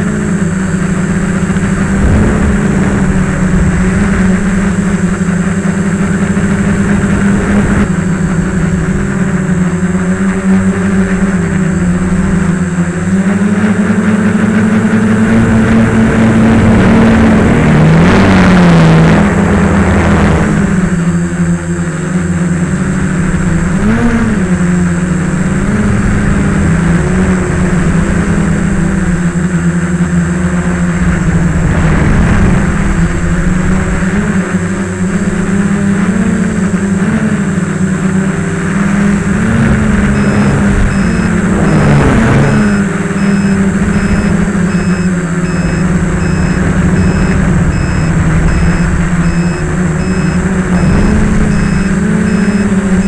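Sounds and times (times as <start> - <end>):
rushing noise: 0.0 - 13.1, 30.3 - 53.0
drone propellers buzzing: 0.0 - 53.0.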